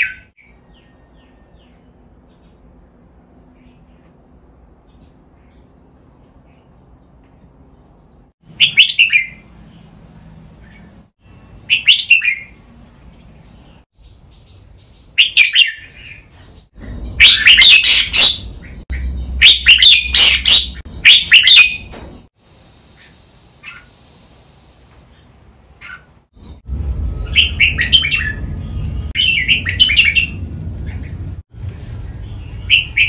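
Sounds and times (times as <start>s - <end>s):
bulbuls singing: 4.9s - 21.9s.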